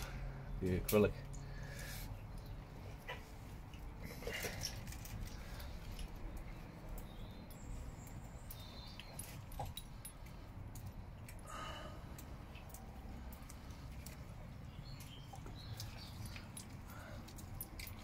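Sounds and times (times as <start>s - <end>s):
low background rumble: 0.0s - 18.0s.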